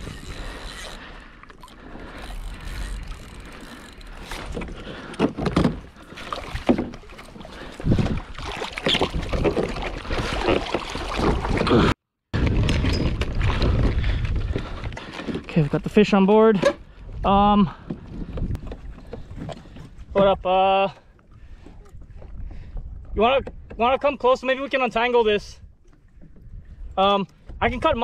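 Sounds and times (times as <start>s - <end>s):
water splashing: 0.0s - 12.0s
wind rumble on microphone: 7.6s - 10.6s, 11.3s - 15.9s, 16.9s - 20.6s, 21.4s - 24.1s, 25.4s - 28.0s.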